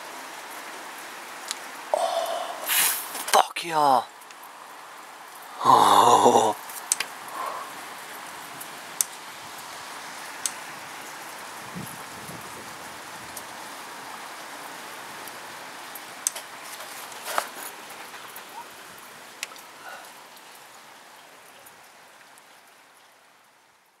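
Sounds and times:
steady rain falling: 0.0s - 24.0s.

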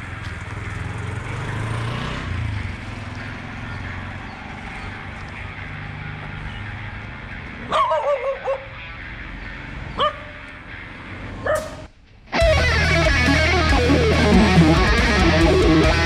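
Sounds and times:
dogs barking: 7.6s - 8.8s, 9.9s - 10.6s, 11.4s - 11.8s
electric guitar music: 12.3s - 16.0s.

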